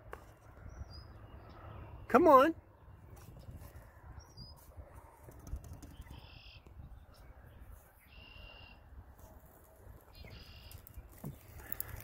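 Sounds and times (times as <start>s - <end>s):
wind rumble on microphone: 0.0s - 8.1s
short high bird calls: 8.0s - 8.8s.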